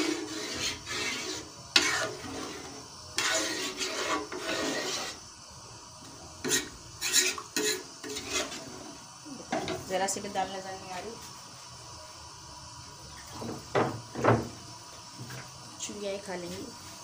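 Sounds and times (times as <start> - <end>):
metal spoon scraping pot: 0.0 - 5.2, 6.4 - 8.8.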